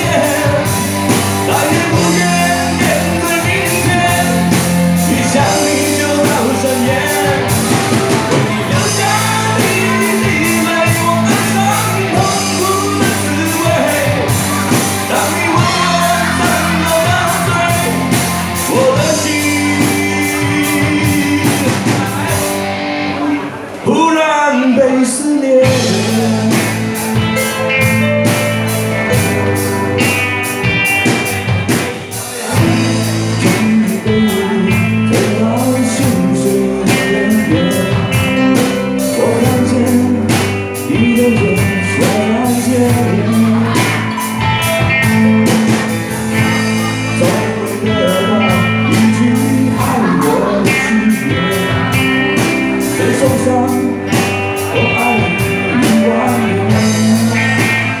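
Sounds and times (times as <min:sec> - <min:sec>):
drum beat: 0:00.0 - 0:22.6, 0:25.7 - 0:36.3
bass: 0:00.0 - 0:58.0
electric guitar: 0:00.0 - 0:58.0
person singing: 0:00.0 - 0:58.0.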